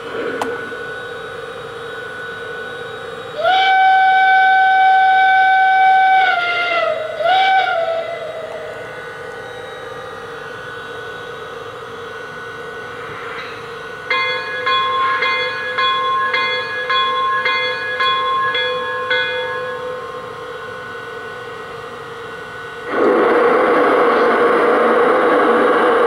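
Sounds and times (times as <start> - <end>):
steady hum: 0.0 - 26.0
steam whistle blasts: 3.4 - 9.0.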